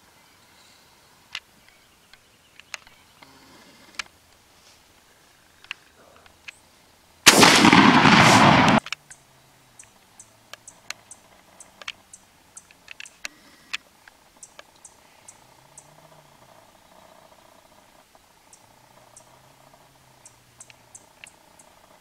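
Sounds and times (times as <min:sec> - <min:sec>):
faint clicks: 0:01.3 - 0:06.7, 0:07.3 - 0:22.0
shotgun blast: 0:07.3 - 0:08.9.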